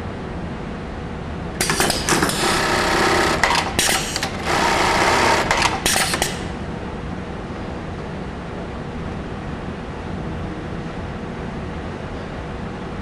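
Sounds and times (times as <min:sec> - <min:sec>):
sewing machine sewing in bursts: 0:01.6 - 0:06.6
sharp machine clicks: 0:01.6 - 0:06.6.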